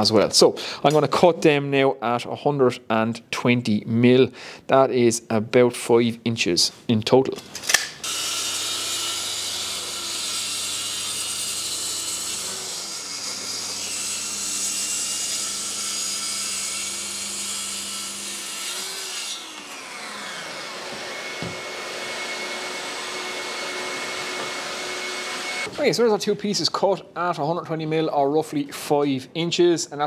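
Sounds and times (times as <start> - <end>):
circular saw cutting sheet: 8.0 - 25.7
dust extractor humming: 19.4 - 25.7.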